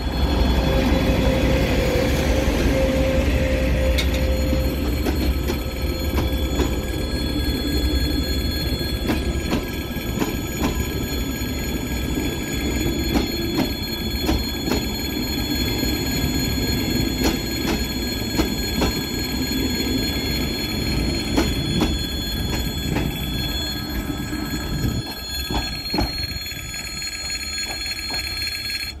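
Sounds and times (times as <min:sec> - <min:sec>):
train rumble: 0:00.0 - 0:29.0
wheels clicking over rail joints: 0:24.6 - 0:29.0.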